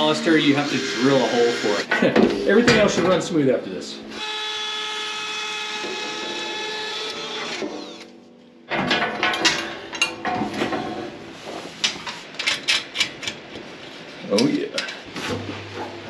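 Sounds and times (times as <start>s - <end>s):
cordless drill boring: 0.4s - 1.9s, 4.2s - 8.1s
metal hardware knocks and clicks: 8.7s - 10.9s.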